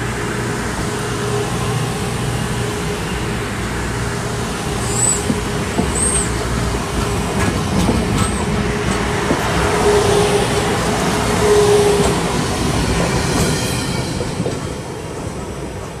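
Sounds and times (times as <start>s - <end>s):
train cars rumbling on rails: 0.0s - 16.0s
faint wheel squeal: 4.9s - 5.3s.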